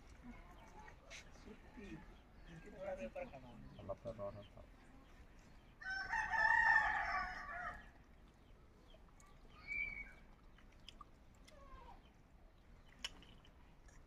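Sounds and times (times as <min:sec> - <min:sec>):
rooster crowing: 0:05.8 - 0:07.8.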